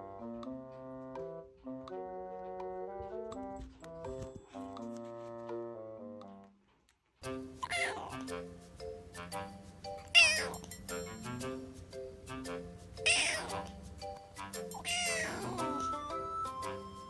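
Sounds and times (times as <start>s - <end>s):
background music: 0.0s - 6.6s, 7.2s - 17.0s
kitten mewing: 7.6s - 8.3s, 10.1s - 10.7s, 13.0s - 13.7s, 14.8s - 16.0s.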